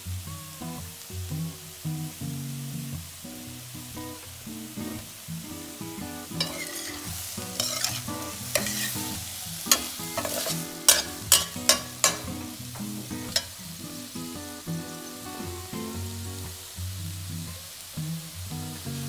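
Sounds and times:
food sizzling in a pan: 0:00.0 - 0:19.0
metal spatula scraping a pan: 0:06.4 - 0:12.3
spatula clanking against pan: 0:06.4 - 0:13.6.

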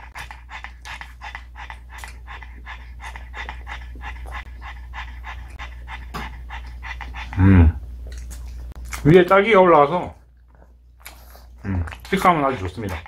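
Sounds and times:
dog panting rapidly: 0:00.0 - 0:07.4, 0:11.1 - 0:13.0.

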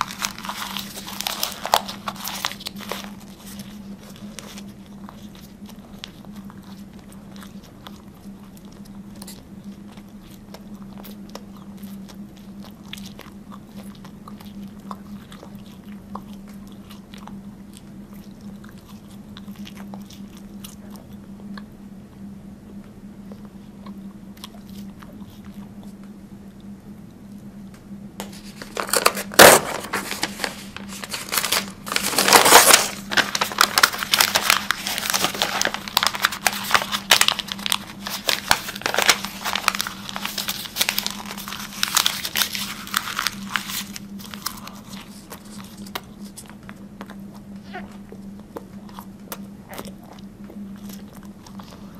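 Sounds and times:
paper crinkling and tearing: 0:00.0 - 0:06.8, 0:28.2 - 0:46.6
person chewing paper: 0:00.0 - 0:51.9.

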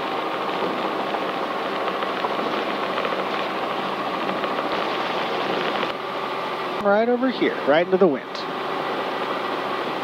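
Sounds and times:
helicopter engine and rotors: 0:00.6 - 0:06.1.

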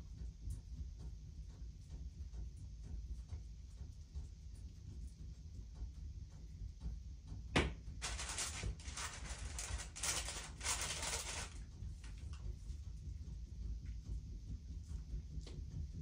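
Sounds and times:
baking paper rustling and crinkling: 0:08.0 - 0:12.3.

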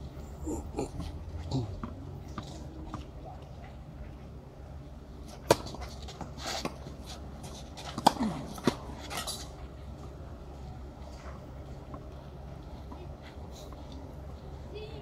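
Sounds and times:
tennis ball struck by racket: 0:05.4 - 0:06.8, 0:07.8 - 0:09.4.

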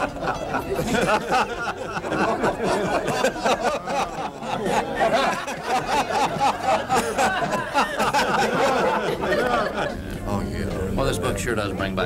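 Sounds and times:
men laughing softly: 0:00.0 - 0:10.3
murmured chatter: 0:00.0 - 0:12.0.

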